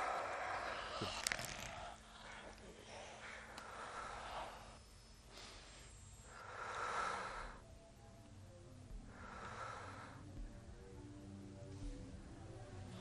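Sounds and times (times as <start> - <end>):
person breathing heavily: 0.0 - 7.6, 9.0 - 10.4.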